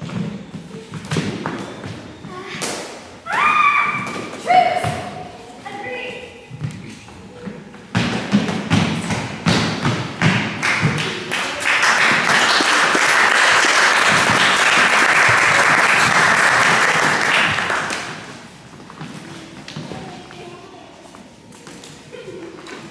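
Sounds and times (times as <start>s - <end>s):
audience applause: 10.6s - 18.2s.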